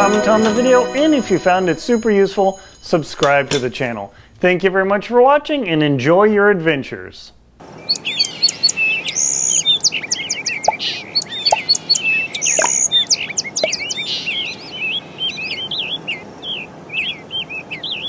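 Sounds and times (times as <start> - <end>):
birds chirping and singing: 7.8 - 18.0.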